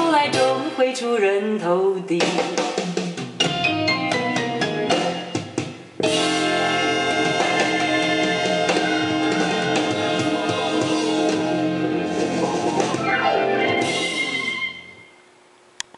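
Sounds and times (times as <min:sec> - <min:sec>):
pop-rock band with drums and guitar: 0:00.0 - 0:01.0, 0:02.2 - 0:15.1
guitar falling slide: 0:06.0 - 0:15.2.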